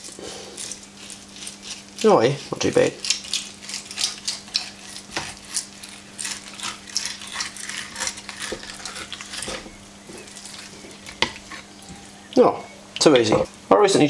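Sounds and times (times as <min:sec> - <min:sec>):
knife scraping fish on board: 0:03.0 - 0:09.7
low hum: 0:05.8 - 0:13.7.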